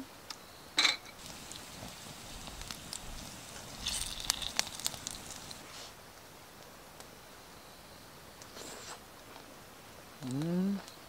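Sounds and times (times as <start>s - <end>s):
meat sizzling on a grill pan: 1.2s - 5.9s.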